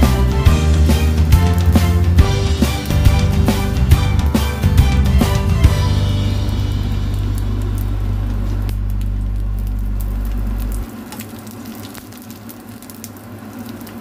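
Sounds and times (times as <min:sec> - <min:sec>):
low steady hum: 0:05.5 - 0:11.1
fish sizzling in hot oil: 0:05.8 - 0:14.0.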